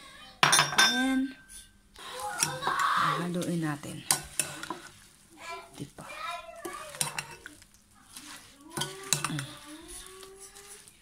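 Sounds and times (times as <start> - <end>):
spoon clinking against bowl: 0.4 - 1.2, 6.9 - 7.5, 8.7 - 9.6
metal spoon stirring salad: 2.0 - 11.0.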